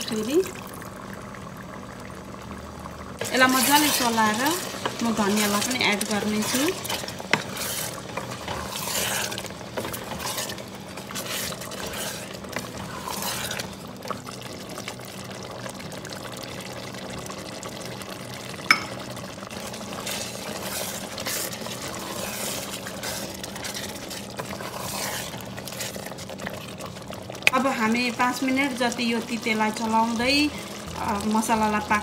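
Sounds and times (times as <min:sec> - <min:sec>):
curry simmering and bubbling: 0:00.0 - 0:32.0
spatula scraping pot: 0:03.2 - 0:14.2, 0:19.6 - 0:26.9.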